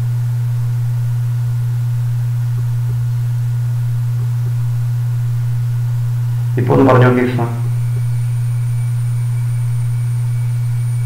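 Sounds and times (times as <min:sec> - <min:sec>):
low electrical hum: 0:00.0 - 0:11.0
thin high whine: 0:06.6 - 0:08.3.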